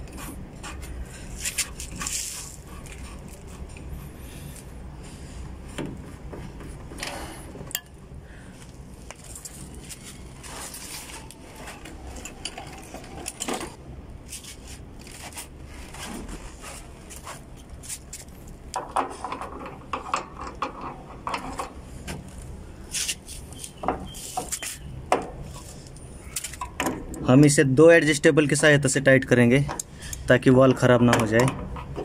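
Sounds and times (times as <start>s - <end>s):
metal wrenches clinking and scraping: 9.3s - 13.8s.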